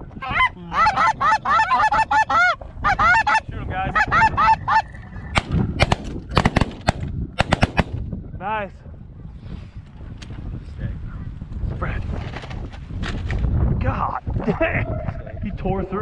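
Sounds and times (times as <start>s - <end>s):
snow geese honking: 0.2s - 4.9s
shotgun shots: 5.4s - 8.0s.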